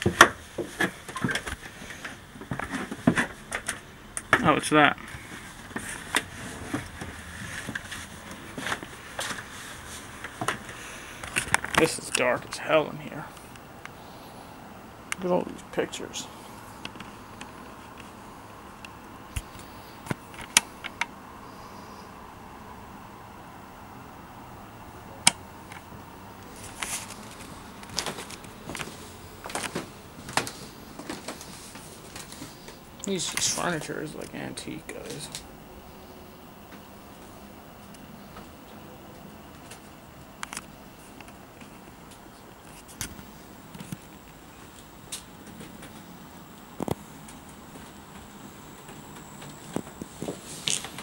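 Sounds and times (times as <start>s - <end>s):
low background hiss: 0.0s - 20.5s, 21.2s - 51.0s.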